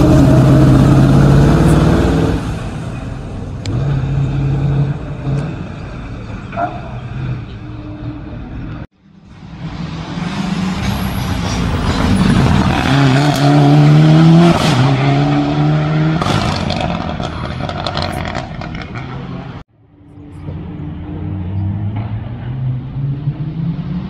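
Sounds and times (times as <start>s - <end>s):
rally car engine accelerating: 11.7s - 19.6s.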